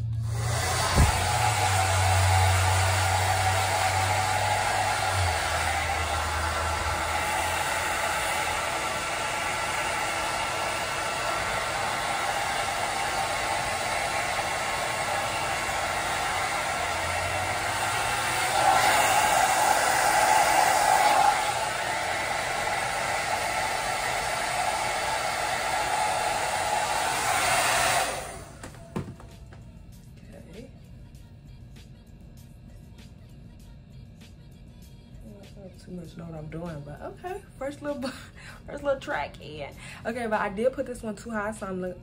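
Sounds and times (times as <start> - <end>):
hair dryer blowing: 0.0 - 29.7.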